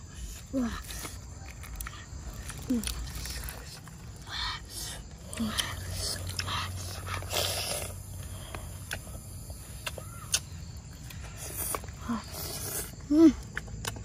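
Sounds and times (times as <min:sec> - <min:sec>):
child chewing: 0:00.0 - 0:14.0
lip-smacks and clicks: 0:08.8 - 0:09.1, 0:09.8 - 0:12.0.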